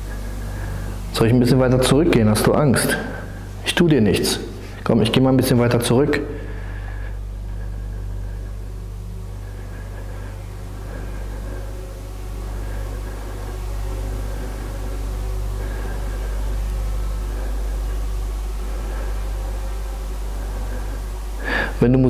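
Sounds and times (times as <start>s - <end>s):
low electrical hum: 0.0s - 22.0s
light hiss: 6.4s - 21.9s.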